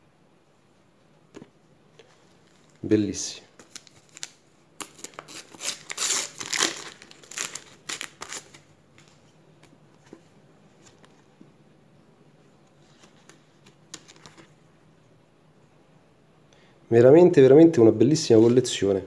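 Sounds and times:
wrapper crinkling and rustling: 3.6s - 9.2s.

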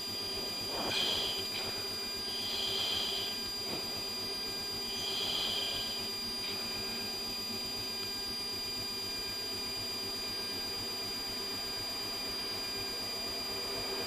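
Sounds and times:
high-pitched whine: 0.0s - 14.0s.

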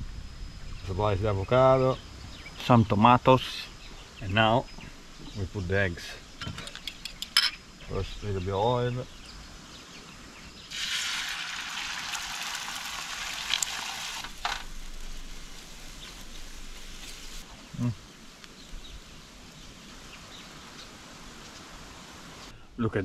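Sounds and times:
eggs sizzling on a hot griddle: 10.7s - 17.5s.

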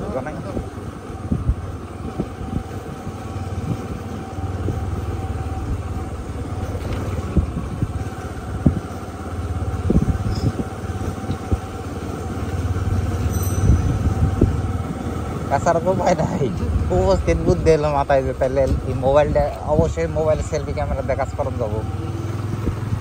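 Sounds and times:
knocks and rattles of bike: 0.0s - 23.0s
motorcycle engine running: 0.0s - 23.0s.

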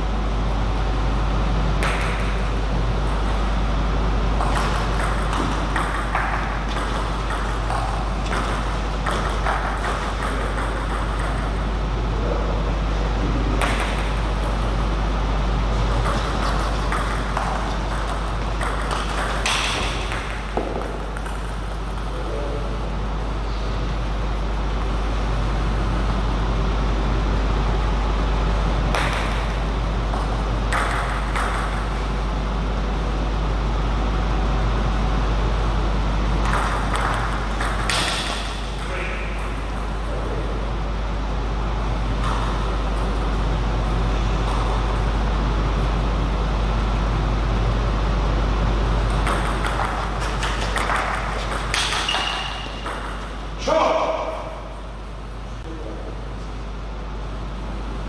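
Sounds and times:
steady low hum: 0.0s - 58.0s
table tennis ball clicking: 4.4s - 11.6s, 49.1s - 53.2s.

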